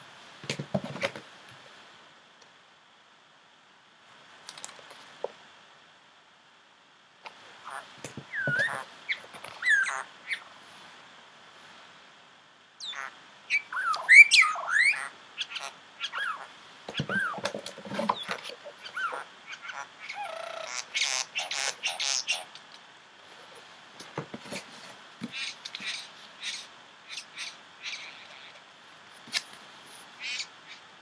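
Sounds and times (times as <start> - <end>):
rustling noise: 4.4 - 5.5, 16.9 - 18.9, 23.2 - 26.4
bird chirps and squawks: 7.6 - 10.6, 12.8 - 22.8, 25.3 - 28.7, 30.1 - 30.9.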